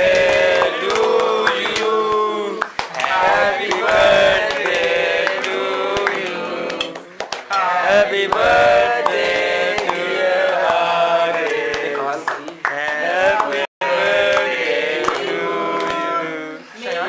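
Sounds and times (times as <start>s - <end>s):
sharp claps: 0.0s - 7.7s, 8.3s - 13.6s, 14.3s - 16.1s.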